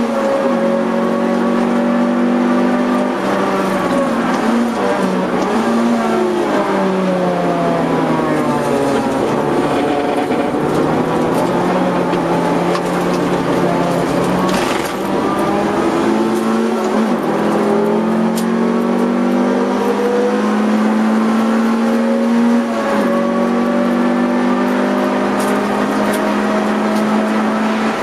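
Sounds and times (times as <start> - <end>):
car engine braking and downshifting: 0.0 - 28.0.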